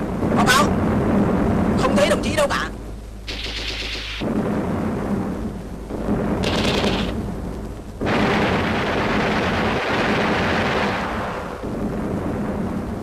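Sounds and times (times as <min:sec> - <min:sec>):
explosions: 0:00.0 - 0:02.4, 0:03.3 - 0:13.0
gunfire: 0:03.3 - 0:04.6, 0:05.9 - 0:07.2, 0:08.0 - 0:11.8
loud blast with roar: 0:03.3 - 0:07.3, 0:08.0 - 0:12.9.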